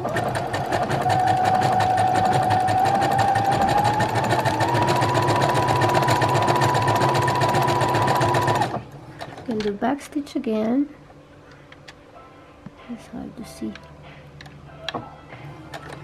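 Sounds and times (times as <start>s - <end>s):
sewing machine running: 0.0s - 8.8s.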